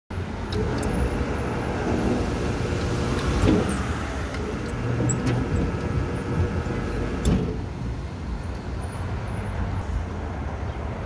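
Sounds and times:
electric motor and gearbox running: 0.4s - 7.6s.

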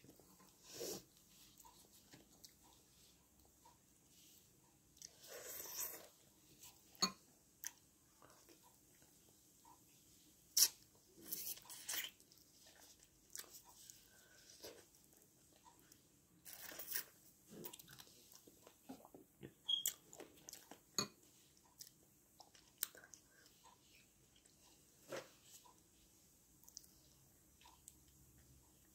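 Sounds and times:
crunching and chewing: 10.6s - 20.9s.

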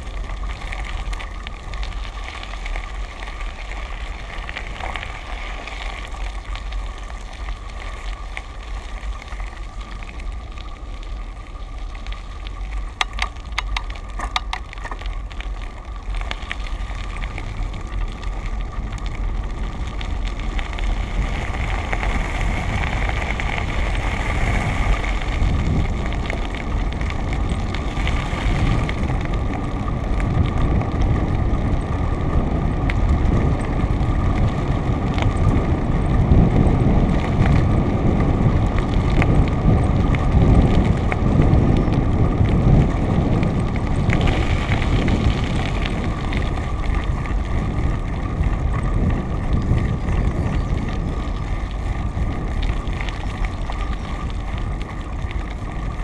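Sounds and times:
vehicle rumbling on rough road: 0.0s - 56.0s
wind on microphone: 16.2s - 56.0s.

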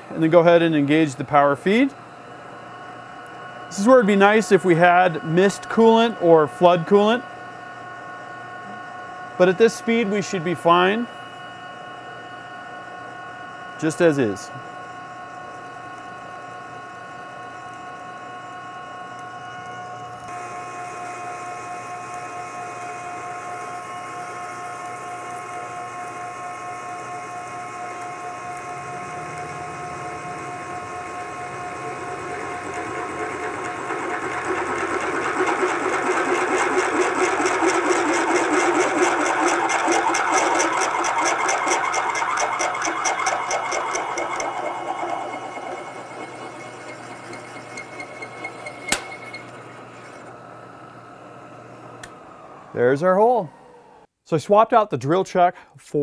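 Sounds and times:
milling machine whine: 0.0s - 54.1s
drill grinding metal: 24.2s - 50.3s.

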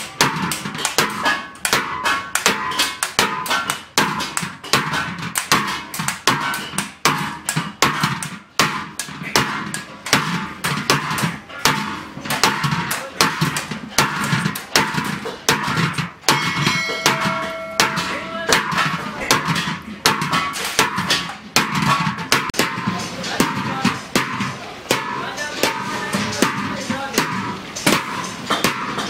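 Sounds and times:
hammer beating metal pan: 0.0s - 29.0s.

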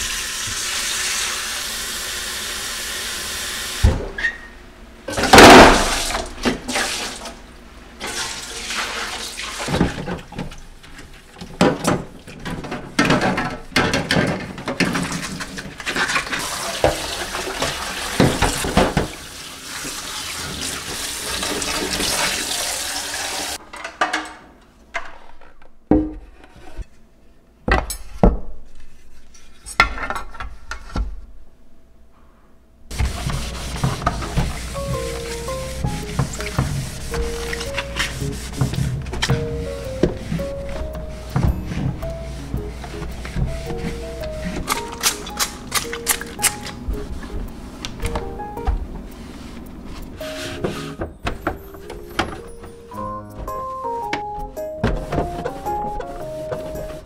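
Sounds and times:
tap water running into sink: 0.0s - 2.1s
knocks and splashes of washing: 5.1s - 24.2s, 32.9s - 49.0s, 50.2s - 57.0s.

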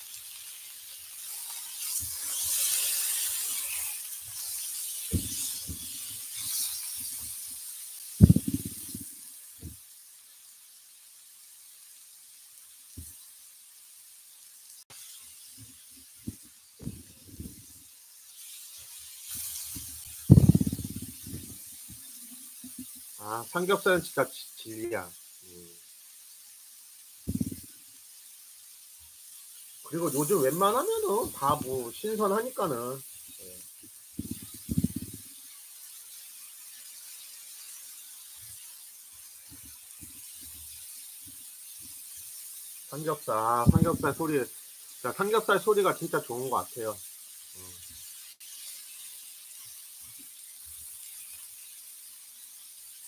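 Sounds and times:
meat sizzling on grill pan: 0.0s - 53.0s
faint low thuds: 5.2s - 5.4s, 8.2s - 9.0s, 16.3s - 17.6s, 20.3s - 21.6s
soft low thumps: 5.2s - 5.4s, 8.2s - 9.0s, 16.3s - 17.6s, 20.3s - 21.6s, 27.3s - 27.6s.

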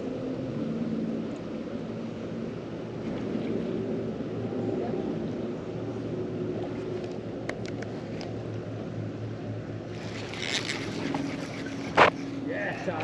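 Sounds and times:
water lapping against kayak: 9.9s - 13.0s.

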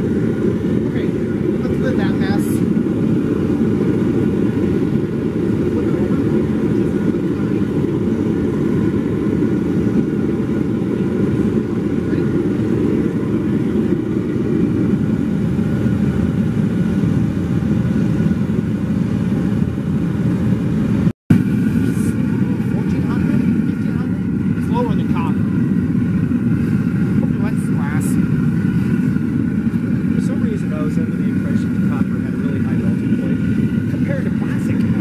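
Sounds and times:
propane burner flame rushing: 0.0s - 35.0s.

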